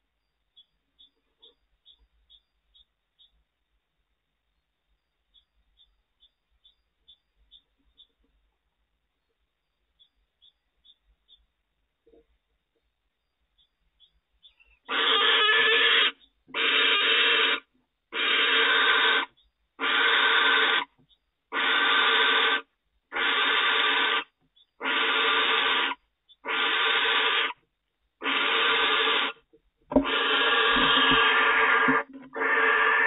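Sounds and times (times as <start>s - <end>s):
barn owl rasping hiss: 14.9s - 20.9s, 21.5s - 27.6s, 28.2s - 29.4s, 30.0s - 33.0s.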